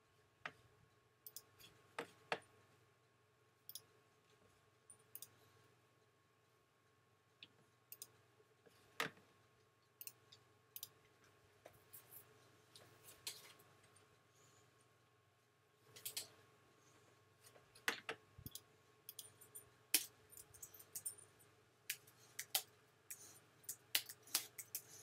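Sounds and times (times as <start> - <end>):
faint steady hum: 0.0 - 25.0
computer mouse clicks: 1.2 - 1.5, 5.0 - 5.4, 7.4 - 8.2, 10.0 - 11.0, 21.9 - 25.0.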